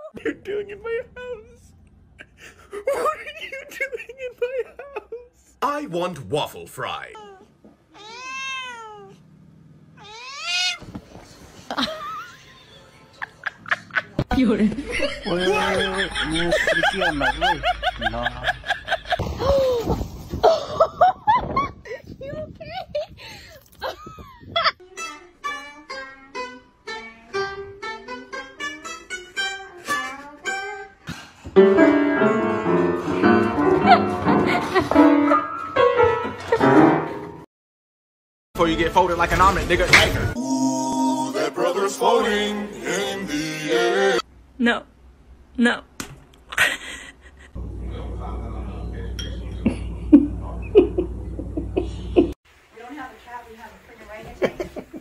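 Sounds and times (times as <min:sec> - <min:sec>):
cat meowing: 0:07.2 - 0:09.2, 0:10.0 - 0:10.9.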